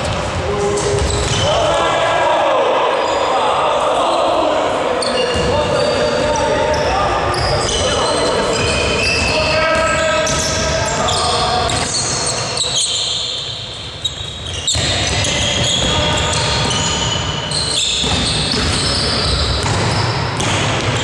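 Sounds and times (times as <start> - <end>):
sneakers squeaking on court: 0.0 - 1.5, 5.0 - 21.0
basketball bouncing on floor: 19.6 - 21.0.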